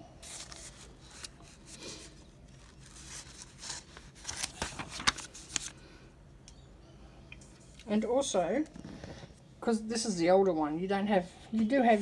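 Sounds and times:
book pages rustling: 0.2 - 5.8
crisp page flicks: 3.7 - 5.8.

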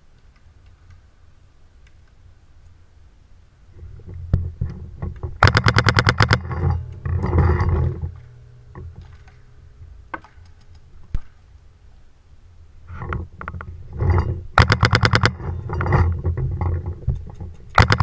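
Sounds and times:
paintball marker firing: 5.4 - 6.5, 17.8 - 18.0.

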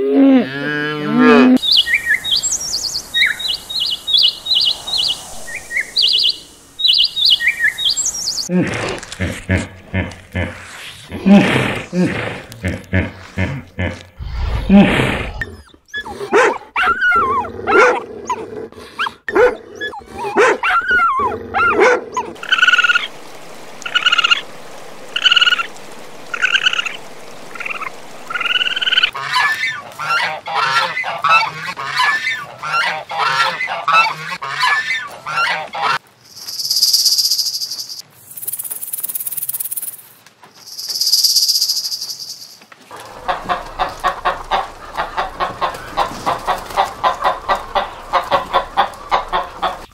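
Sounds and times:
geese honking: 27.6 - 36.0, 42.9 - 49.9
hens clucking: 42.9 - 49.9.

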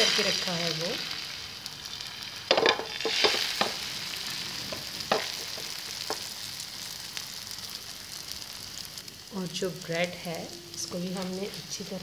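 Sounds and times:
egg sizzling in frying pan: 0.0 - 12.0.

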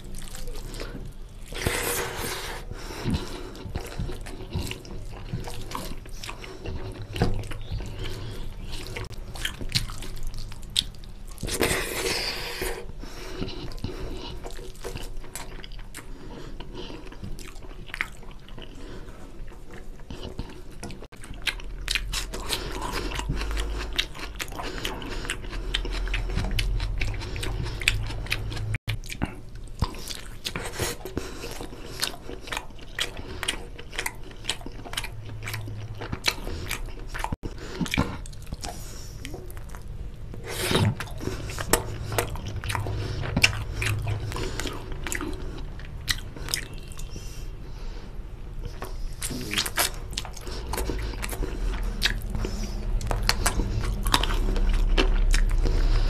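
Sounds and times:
close chewing with wet clicks: 0.0 - 1.8, 3.0 - 11.8, 13.3 - 47.3, 48.6 - 56.0.

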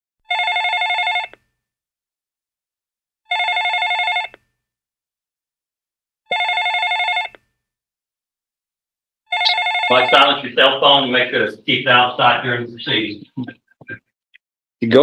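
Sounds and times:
phone ringing electronic warble: 9.3 - 10.4.

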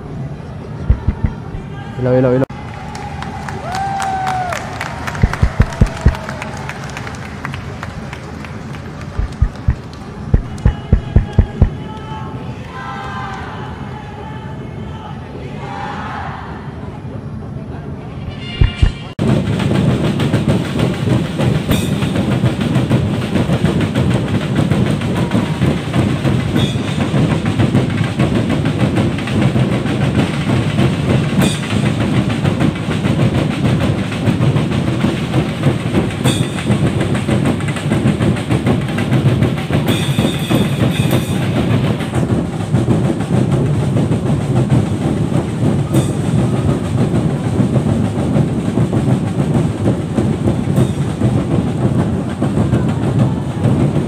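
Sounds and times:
fast continuous drumming: 0.9 - 1.7, 5.2 - 6.4, 9.2 - 12.0, 18.6 - 54.0.

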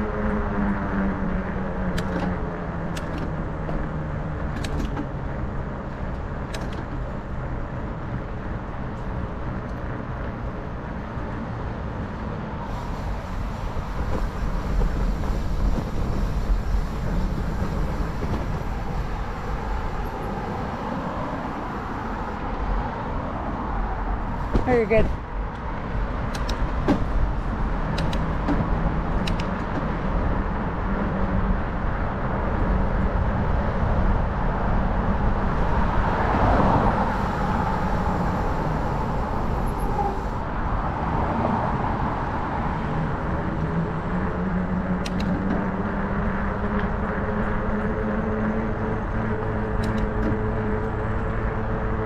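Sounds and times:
wind rush on microphone: 0.0 - 52.0
bike tyres humming on pavement: 5.1 - 52.0
car passing: 12.6 - 29.2, 33.2 - 52.0.

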